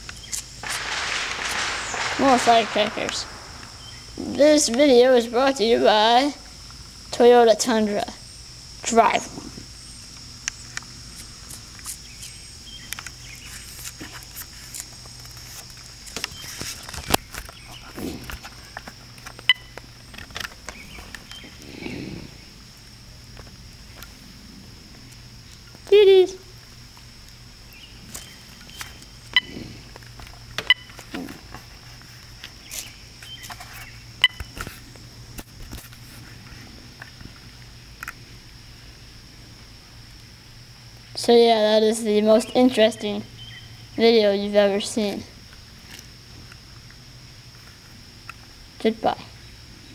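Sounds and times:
crickets chirring: 0.0s - 49.9s
sharp click: 0.3s - 4.3s.

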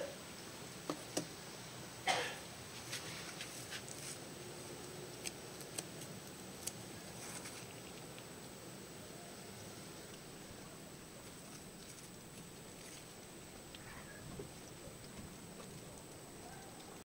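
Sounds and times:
faint steady hiss: 0.0s - 17.0s
plastic stick in potting mix: 0.8s - 1.3s, 2.7s - 8.5s.

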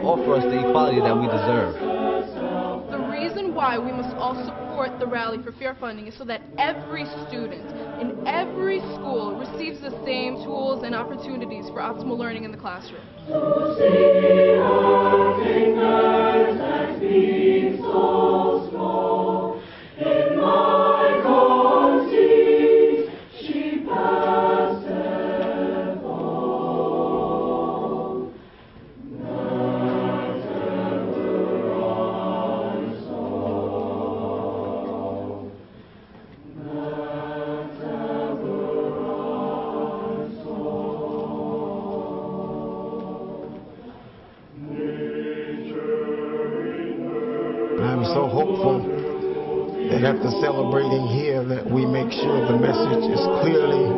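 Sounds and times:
mixed choir singing: 0.0s - 53.9s.

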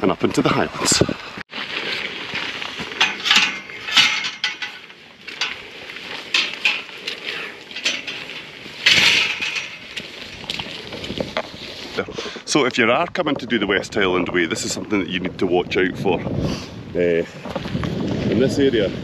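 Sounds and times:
rushing rustle: 1.2s - 12.5s
metal gate clinking and rattling: 3.0s - 10.7s.

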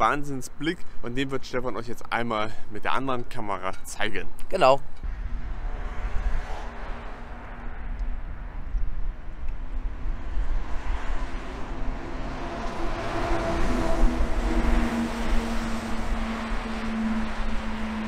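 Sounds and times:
wind rumbling on microphone: 4.8s - 18.0s.

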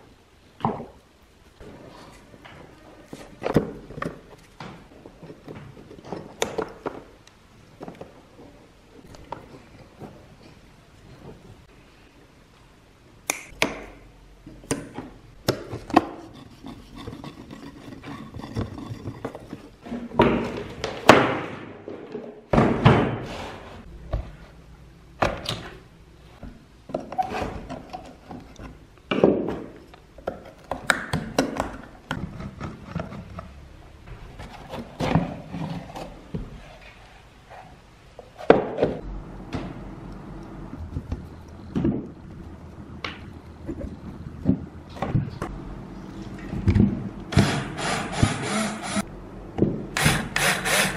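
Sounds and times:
screwdriver on screws and plastic: 47.3s - 49.1s, 50.0s - 50.9s.

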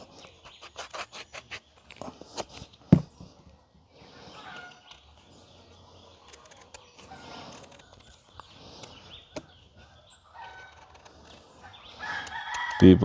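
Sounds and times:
birds calling: 0.0s - 13.0s
knife peeling fruit skin: 0.3s - 2.4s.

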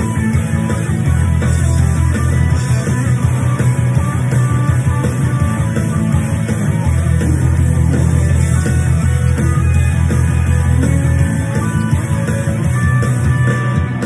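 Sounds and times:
electric guitar hard rock line: 0.0s - 14.0s
rock band with bass and drums: 0.0s - 14.0s.

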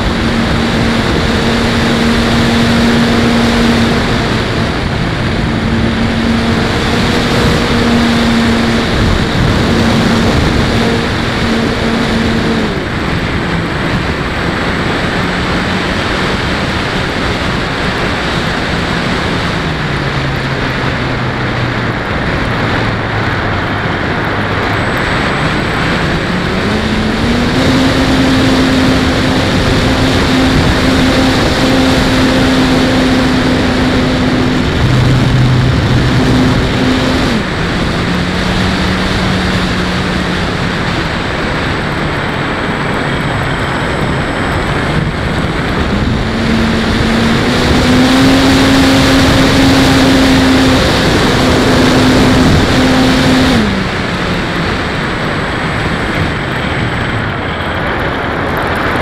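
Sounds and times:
electric motor and propeller hum: 0.0s - 59.0s
wind rush: 0.0s - 59.0s.

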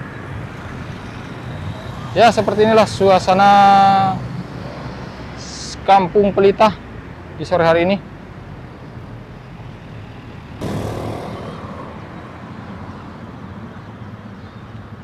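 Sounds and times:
rumble of traffic: 0.0s - 15.0s
vehicle passing close: 10.6s - 13.6s.

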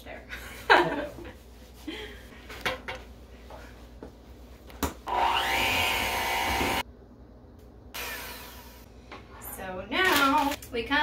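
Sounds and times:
electric hand mixer running: 5.1s - 6.8s.

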